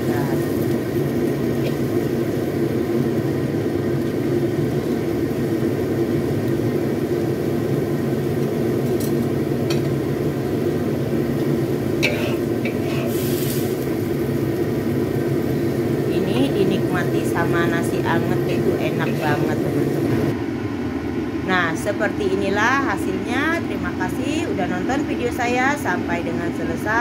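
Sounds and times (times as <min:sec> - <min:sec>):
low mechanical drone: 0:00.0 - 0:27.0
metal spatula scraping wok: 0:12.3 - 0:13.7.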